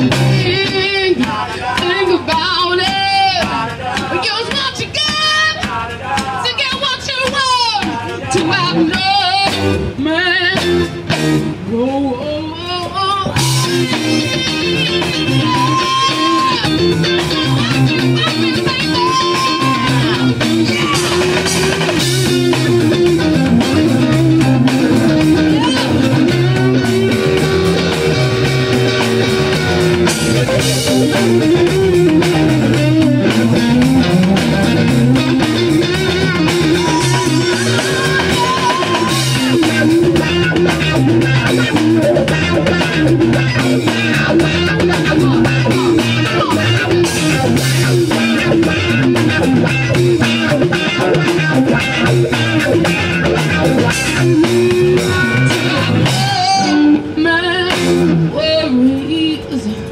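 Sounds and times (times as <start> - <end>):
bass line: 0.0 - 4.3, 8.4 - 11.8, 13.2 - 58.4
electric guitars: 0.0 - 7.4, 8.0 - 59.9
drum kit beat: 0.0 - 11.8, 12.7 - 58.4
woman singing: 0.2 - 10.8, 11.7 - 23.0, 35.5 - 39.8, 54.4 - 59.9.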